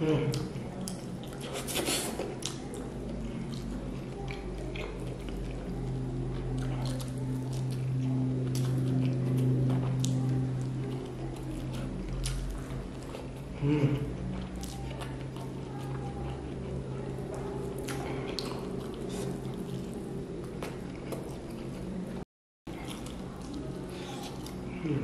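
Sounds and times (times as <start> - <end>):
steady low hum: 0.0 - 25.0
person humming: 13.6 - 14.1, 24.7 - 25.0.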